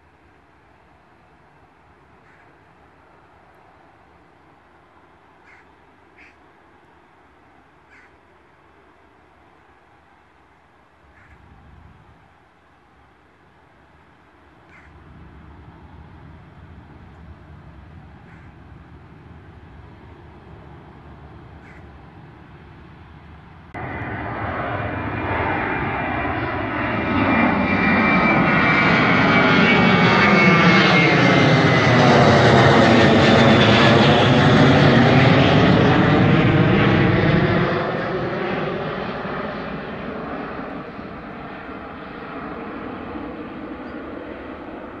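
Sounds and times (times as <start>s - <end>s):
jet airliner passing overhead: 0.0s - 45.0s
high jet whine: 14.2s - 45.0s.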